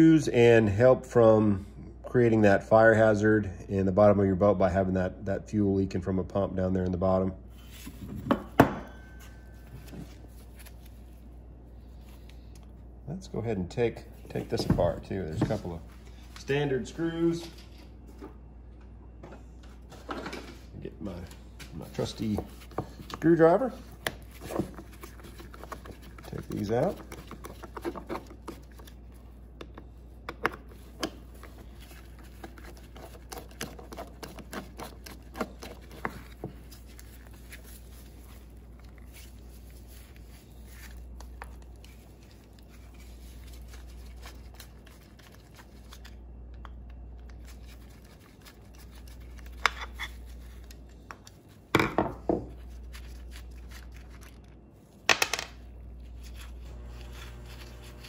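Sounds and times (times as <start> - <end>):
low steady hum: 0.0 - 58.0.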